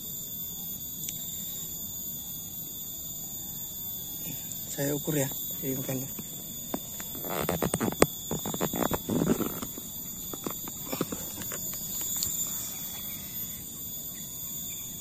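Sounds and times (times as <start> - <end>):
high-pitched insect drone: 0.0 - 15.0
vegetation rustling: 6.8 - 12.5.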